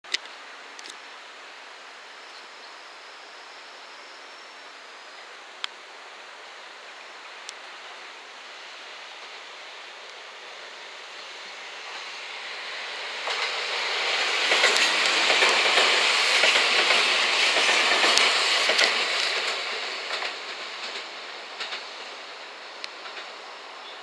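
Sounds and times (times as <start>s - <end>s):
train passing on rails: 0.1s - 24.0s
wheels clicking over rail joints: 13.2s - 22.0s, 22.8s - 23.4s.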